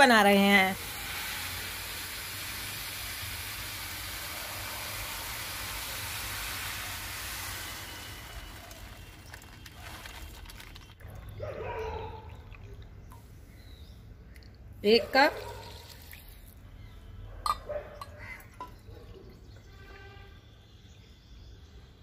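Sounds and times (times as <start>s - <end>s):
water pouring and gurgling: 0.6s - 11.4s, 12.2s - 13.2s, 15.4s - 16.7s, 17.4s - 19.8s
sugar pouring into steel pot: 0.7s - 11.0s.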